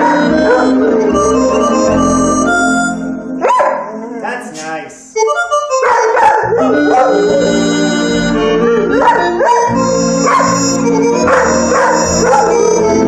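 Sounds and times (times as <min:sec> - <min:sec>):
electronic organ playing chords: 0:00.0 - 0:03.6, 0:05.2 - 0:13.0
dog howling: 0:05.8 - 0:07.7, 0:09.0 - 0:12.6.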